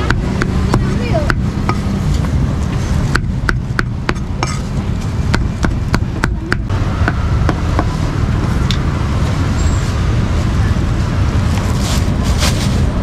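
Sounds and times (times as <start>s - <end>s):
cleaver chopping on wooden block: 0.0s - 1.9s, 3.1s - 4.6s
steady low rumble: 0.0s - 13.0s.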